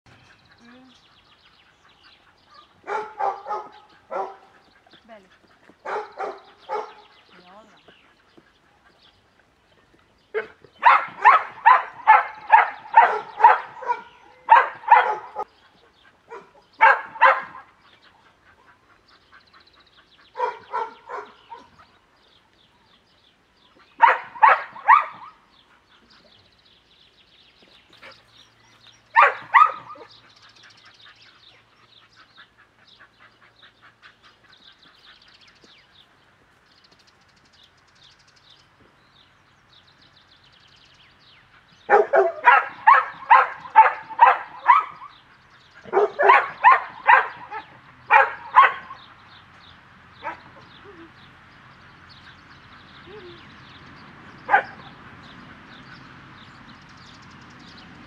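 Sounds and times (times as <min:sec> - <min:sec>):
dog barking: 0:02.5 - 0:04.5, 0:05.8 - 0:07.1, 0:10.4 - 0:15.5, 0:16.3 - 0:17.7, 0:20.4 - 0:21.8, 0:24.0 - 0:25.4, 0:29.2 - 0:30.1, 0:41.9 - 0:45.1, 0:45.8 - 0:49.0, 0:54.5 - 0:54.8.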